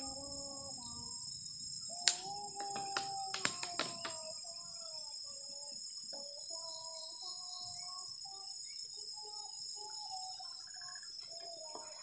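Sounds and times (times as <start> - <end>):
insects chirring: 0.0 - 12.0
sharp clicks: 2.0 - 4.3.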